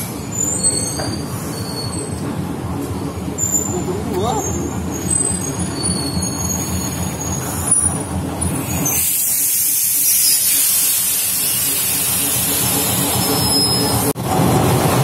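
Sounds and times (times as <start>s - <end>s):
diesel locomotive engine rumbling: 0.0s - 15.0s
loud steady air hiss: 8.6s - 13.9s.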